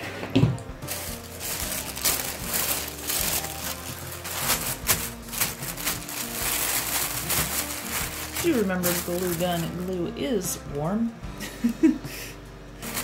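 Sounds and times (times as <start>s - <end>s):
background music: 0.0s - 13.0s
tissue paper crinkling: 0.8s - 10.2s.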